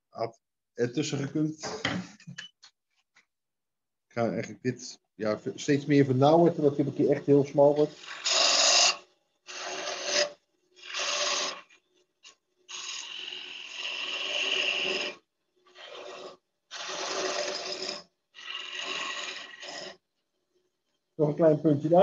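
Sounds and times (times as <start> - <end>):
gouge cutting wood on lathe: 7.8 - 11.8, 15.8 - 20.0.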